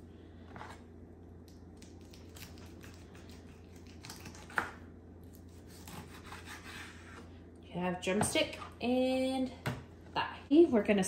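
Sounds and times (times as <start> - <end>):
knife scraping on cutting board: 5.6 - 7.3.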